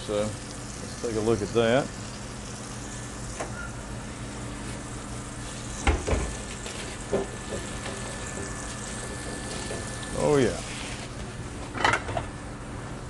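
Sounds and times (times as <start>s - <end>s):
fish sizzling in a skillet: 0.4s - 3.7s, 4.3s - 11.1s.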